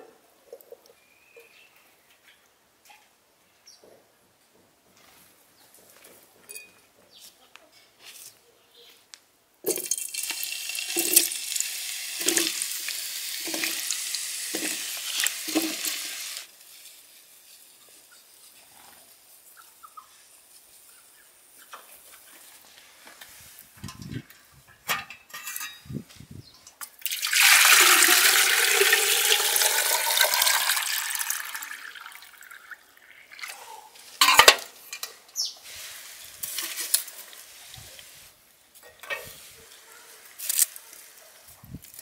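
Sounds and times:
water pouring into metal vessel: 9.7 - 16.5, 27.0 - 33.6.

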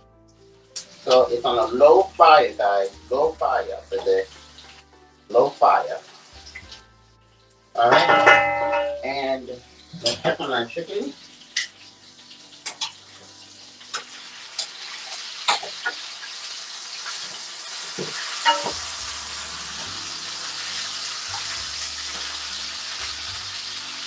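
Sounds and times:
chicken sizzling in a frying pan: 0.3 - 24.0
tongs clicking against pan: 12.6 - 13.0.

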